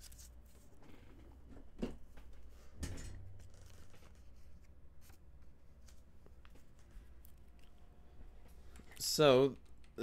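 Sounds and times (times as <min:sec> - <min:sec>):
paper rustling: 0:03.4 - 0:06.6.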